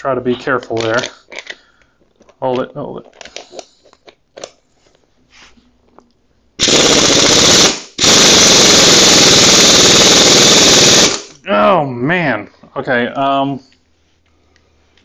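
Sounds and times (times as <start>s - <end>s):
pneumatic impact wrench hammering: 6.6s - 11.4s.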